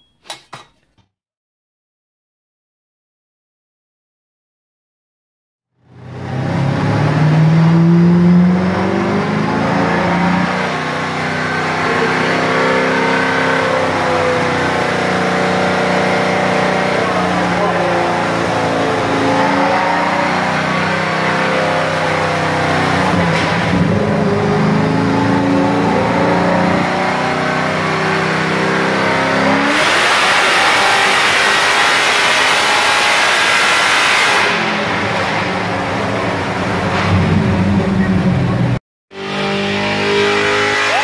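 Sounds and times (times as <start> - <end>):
racing car engine revving: 5.8 - 41.0
loud rushing noise: 32.1 - 38.8.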